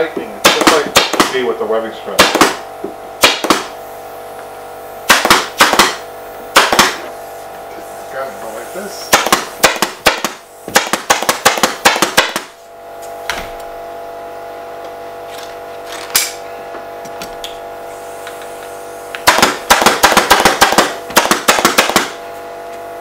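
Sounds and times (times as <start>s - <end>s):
steady hum with held tones: 0.0s - 23.0s
staple gun firing: 5.1s - 6.0s, 6.6s - 7.0s.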